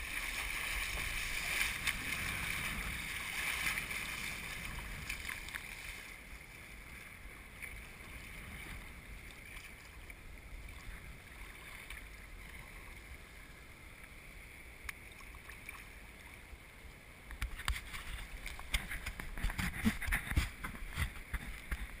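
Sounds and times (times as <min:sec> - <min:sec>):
waves splashing over bow: 0:00.0 - 0:13.4
water lapping against kayak hull: 0:00.0 - 0:13.6
low rush of wind: 0:00.0 - 0:22.0.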